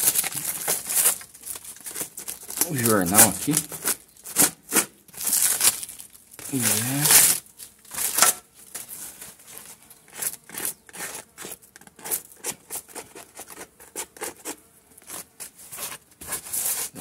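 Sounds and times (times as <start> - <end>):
newspaper and plastic bottle crinkling: 0.0 - 12.9.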